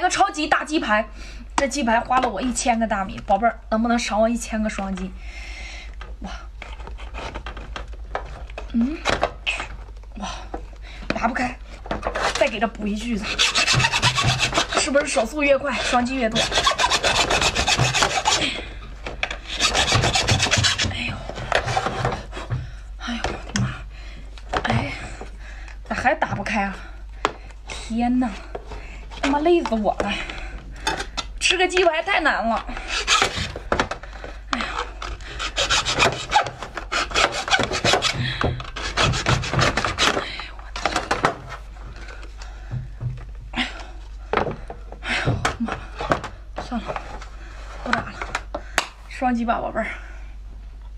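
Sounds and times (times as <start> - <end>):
hacksaw sawing shell: 13.2 - 15.2, 15.8 - 18.4, 19.4 - 21.0, 32.8 - 33.6, 35.4 - 38.2, 38.8 - 40.2.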